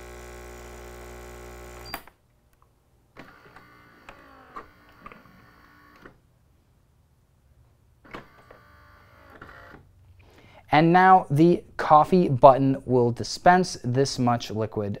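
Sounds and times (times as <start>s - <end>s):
espresso machine pump humming: 0.0s - 1.9s
faint motor whir: 0.0s - 2.0s, 3.2s - 6.2s, 8.1s - 9.8s.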